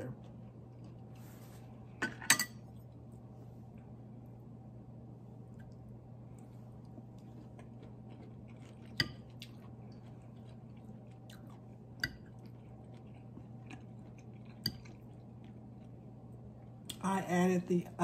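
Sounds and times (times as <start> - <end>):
low steady hum: 0.0 - 18.0
person chewing food: 0.2 - 1.9, 5.5 - 17.0
fork clinking on plate: 2.0 - 2.6.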